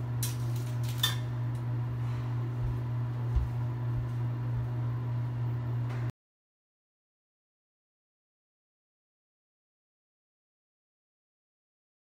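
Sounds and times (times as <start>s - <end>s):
steady low hum: 0.0s - 6.1s.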